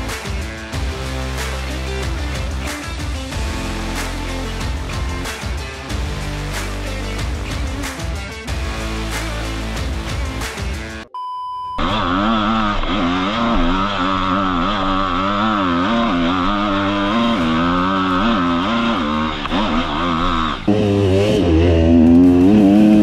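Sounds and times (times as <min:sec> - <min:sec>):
background music: 0:00.0 - 0:11.1, 0:12.8 - 0:23.0
short electronic beep: 0:11.1 - 0:11.9
motorcycle engine revving: 0:11.8 - 0:23.0.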